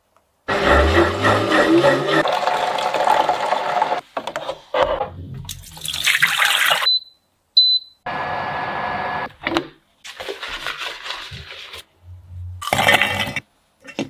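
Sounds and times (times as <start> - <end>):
appliance whirring: 0.5 - 4.0
water splashing in sink: 2.2 - 4.0, 5.4 - 6.9, 10.0 - 11.9.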